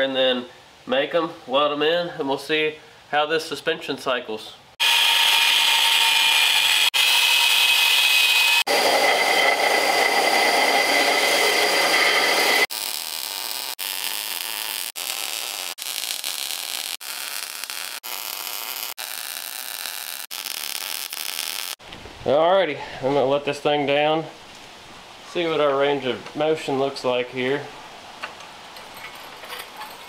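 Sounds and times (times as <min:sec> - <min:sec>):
angle grinder cutting steel: 0:04.8 - 0:21.8
welder hissing: 0:04.8 - 0:21.8.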